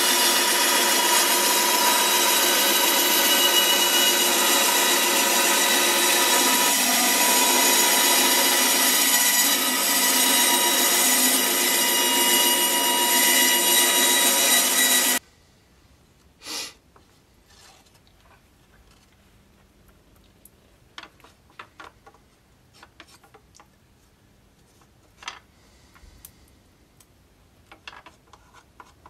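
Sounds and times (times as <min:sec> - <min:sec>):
bandsaw cutting wood: 0:00.0 - 0:15.2.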